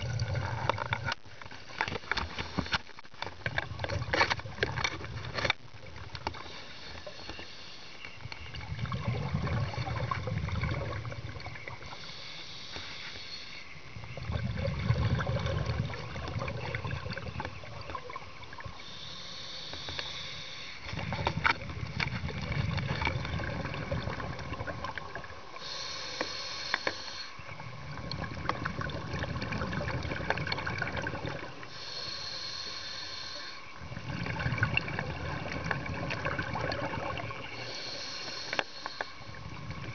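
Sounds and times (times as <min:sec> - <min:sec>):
exhaled bubbles rumbling: 0:00.0 - 0:01.3, 0:03.4 - 0:06.4, 0:08.2 - 0:11.9, 0:13.8 - 0:18.8, 0:20.8 - 0:25.6, 0:27.4 - 0:31.7, 0:33.7 - 0:37.6, 0:39.2 - 0:39.9
regulator hissing inhale: 0:06.4 - 0:08.2, 0:11.7 - 0:13.8, 0:18.8 - 0:21.2, 0:25.5 - 0:27.6, 0:31.6 - 0:33.8, 0:37.3 - 0:39.4.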